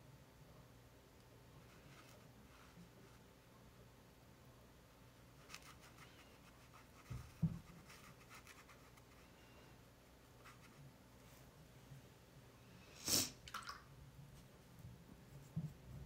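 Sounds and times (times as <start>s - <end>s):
brush scratching on paper: 5.4s - 9.3s, 10.4s - 10.9s.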